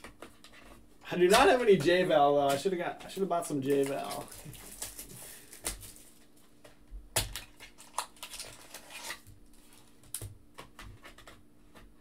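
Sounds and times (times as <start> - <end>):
card packs tapping and rustling: 1.2 - 6.3.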